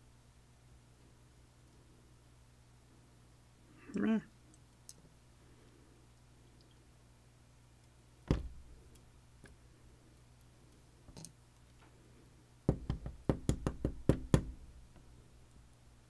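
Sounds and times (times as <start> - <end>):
padlock knocking on hard surface: 12.7 - 14.6.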